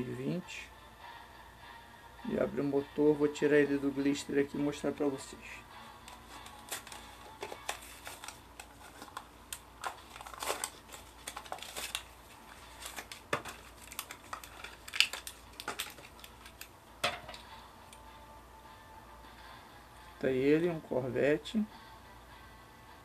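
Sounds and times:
plastic packaging crinkling: 6.0 - 16.7.

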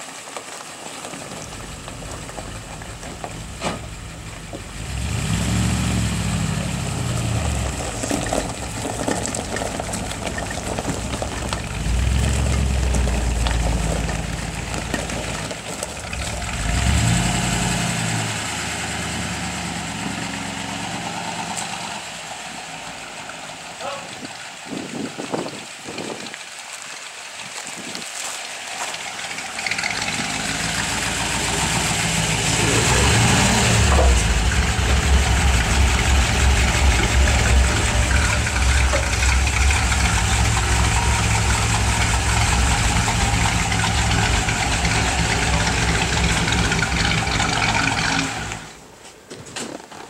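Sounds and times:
car engine running and revving: 1.0 - 23.8, 29.0 - 48.8.

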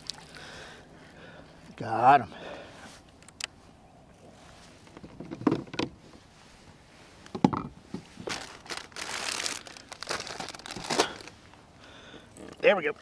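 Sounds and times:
plastic bag crinkling: 8.2 - 11.4.

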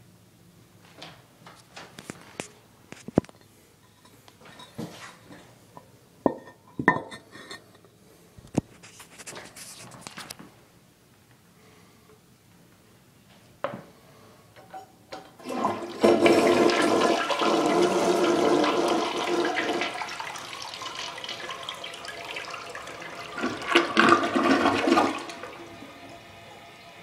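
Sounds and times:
toilet flushing water rushing: 15.4 - 27.0.

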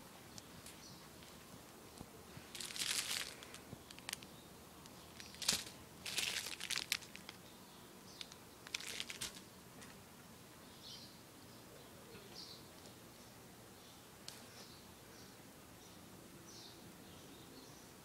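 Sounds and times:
crinkling and rustling: 0.3 - 4.3, 5.1 - 7.4, 8.2 - 10.0.

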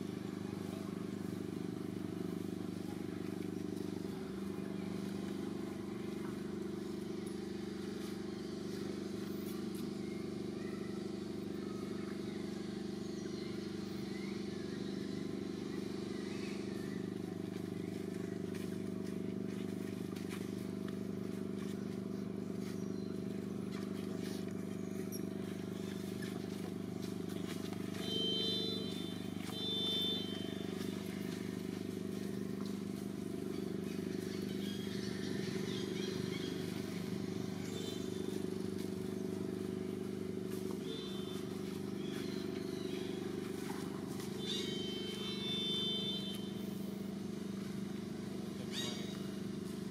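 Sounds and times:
low engine drone: 0.0 - 49.9
baby monkey high-pitched cries: 44.4 - 45.7, 48.7 - 49.3.

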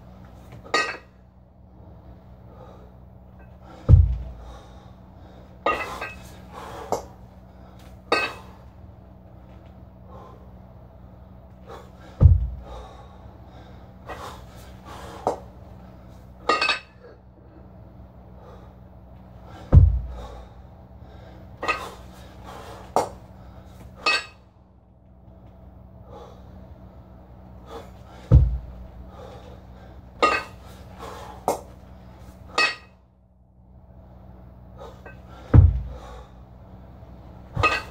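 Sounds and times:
man breathing hard: 1.8 - 8.8, 10.0 - 16.4, 17.0 - 24.0, 25.9 - 32.5, 34.0 - 36.9
kettlebell thud: 3.9 - 4.4, 12.2 - 12.6, 19.7 - 20.3, 28.3 - 28.8, 35.5 - 36.2, 37.6 - 37.9.

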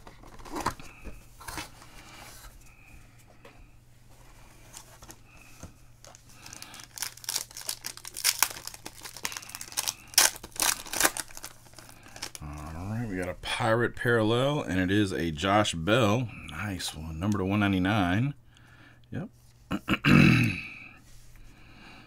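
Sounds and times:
foil wrapper crinkling and tearing: 6.0 - 12.7.

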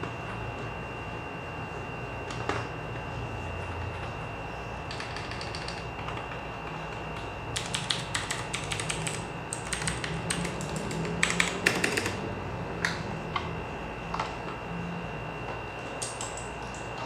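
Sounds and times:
clicky keyboard keystrokes: 4.9 - 12.2, 16.0 - 16.8.

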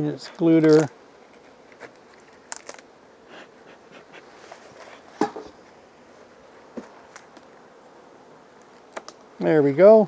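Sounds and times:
honey bees humming: 0.0 - 10.0
hive boxes cracking apart: 0.4 - 2.9, 8.6 - 9.3.

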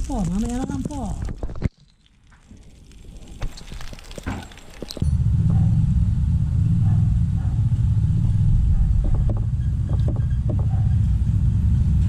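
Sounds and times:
steady low rumble: 4.8 - 12.0.

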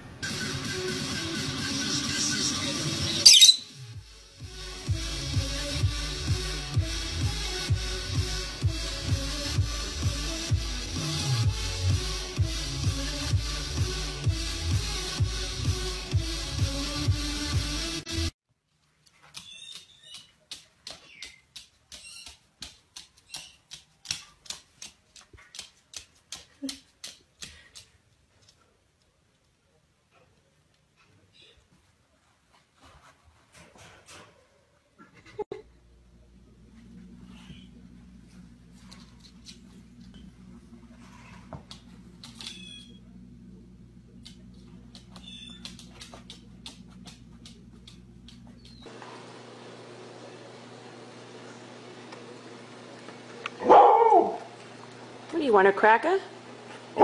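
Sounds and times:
parrot squeaks: 3.1 - 3.8, 19.4 - 20.2, 42.4 - 43.0, 45.2 - 45.7
low hum: 35.6 - 49.1.

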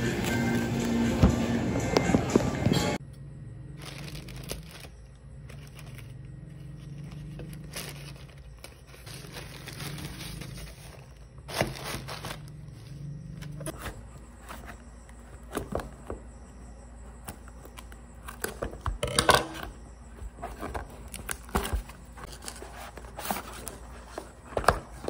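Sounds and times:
steady low hum: 0.0 - 25.0
plastic bag crinkling: 3.8 - 12.6.

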